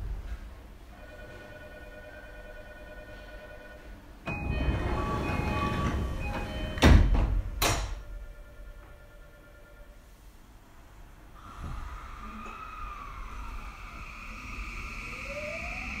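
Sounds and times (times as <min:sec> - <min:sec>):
train doors opening rush: 0:04.3 - 0:08.1, 0:11.4 - 0:16.0
train doors thunking: 0:04.3 - 0:08.1.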